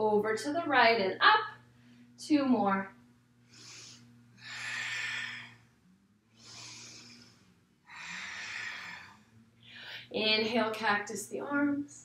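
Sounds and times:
faint low hum: 0.0 - 12.0
woman breathing deeply: 3.4 - 10.1.

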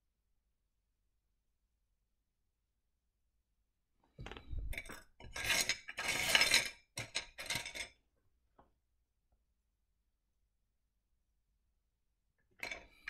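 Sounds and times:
stones clinking in a dish: 4.2 - 8.0.

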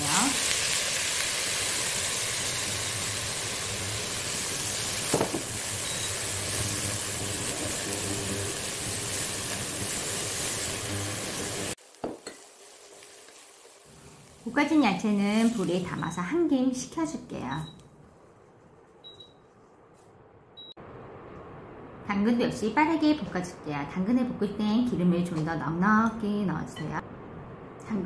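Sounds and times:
vegetables sizzling in a wok: 0.0 - 16.4.

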